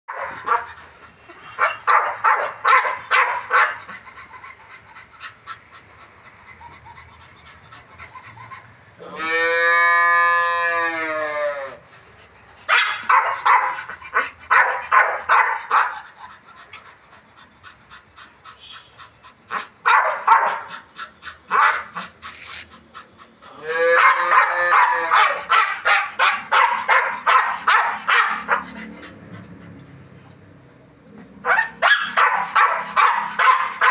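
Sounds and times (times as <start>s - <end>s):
dog barking: 0.1s - 0.7s, 1.6s - 3.8s, 12.7s - 16.0s, 19.8s - 20.7s, 21.5s - 21.9s, 23.9s - 28.7s, 31.4s - 33.9s
dog howling: 9.0s - 11.8s, 23.6s - 25.4s.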